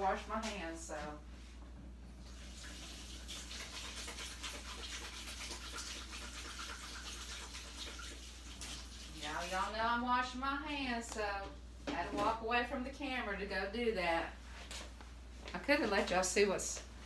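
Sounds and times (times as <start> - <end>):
faint faucet running: 2.2 - 9.8.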